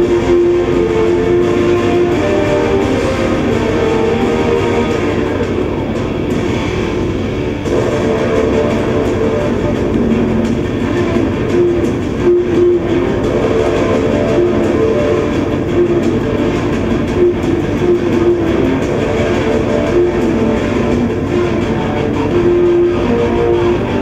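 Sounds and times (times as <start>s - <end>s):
electric guitar music over loudspeakers: 0.0s - 24.0s.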